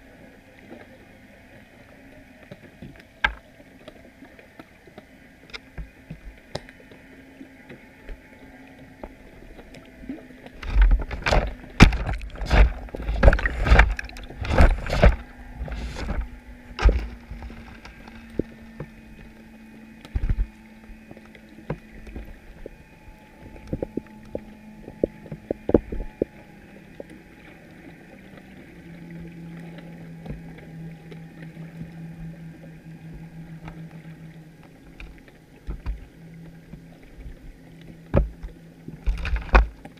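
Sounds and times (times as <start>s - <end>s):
faint steady hum: 0.0s - 39.9s
underwater knocks and thumps: 10.4s - 19.3s, 20.0s - 21.0s, 23.5s - 27.1s, 34.9s - 39.9s.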